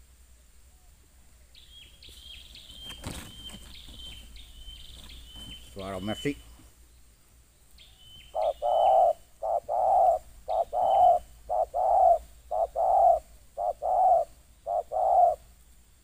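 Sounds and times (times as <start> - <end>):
faint high bird chirps: 0.7 - 15.4
dove cooing: 8.3 - 15.5.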